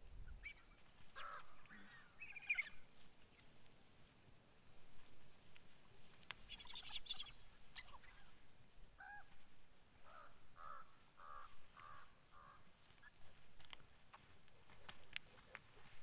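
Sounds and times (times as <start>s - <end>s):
bird calls: 0.1s - 3.7s, 5.0s - 13.7s.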